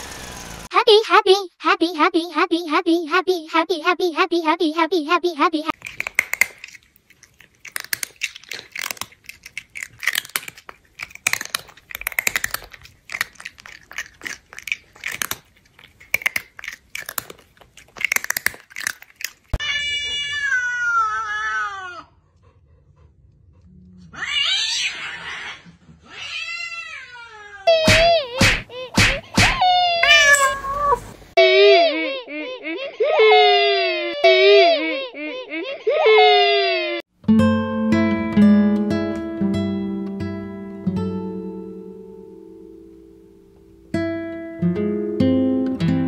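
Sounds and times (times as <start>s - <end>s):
cat chewing noisily: 5.8s - 19.6s
cat meowing: 19.6s - 22.0s, 29.6s - 31.1s.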